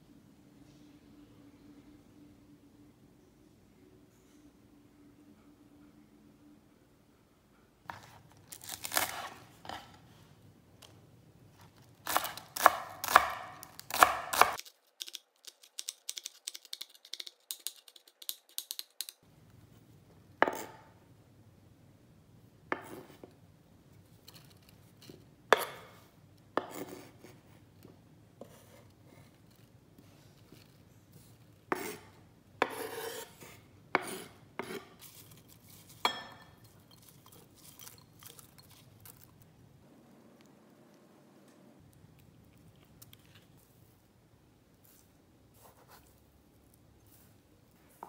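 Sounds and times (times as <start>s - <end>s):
knife chopping on wooden board: 12.1s - 14.6s, 32.6s - 33.2s.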